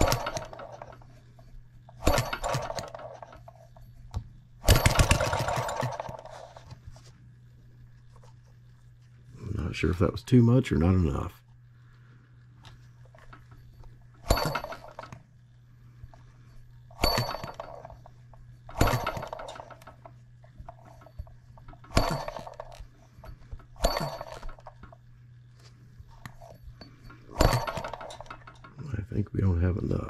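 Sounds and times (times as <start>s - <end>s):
model engine popping: 4.6s - 6.5s.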